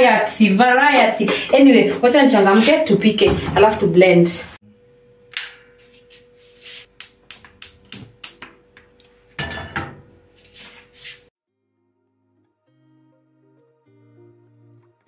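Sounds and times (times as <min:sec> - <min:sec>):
metal pot clattering on grate: 0:09.4 - 0:10.1.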